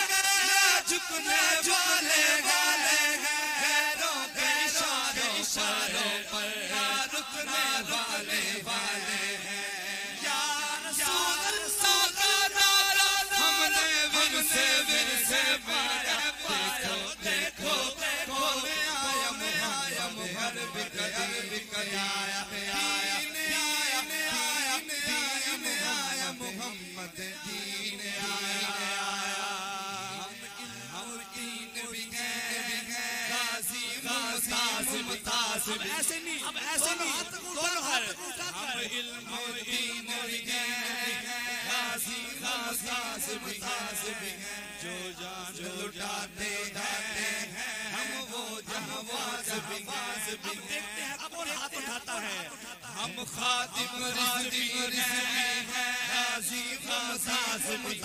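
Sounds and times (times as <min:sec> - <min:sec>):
man chanting: 0:00.0 - 0:58.0
two men singing: 0:00.0 - 0:58.0.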